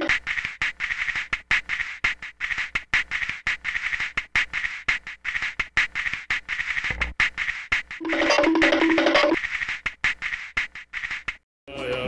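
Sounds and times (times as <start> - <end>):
comic music with quack-like squeaks: 8.0 - 9.4.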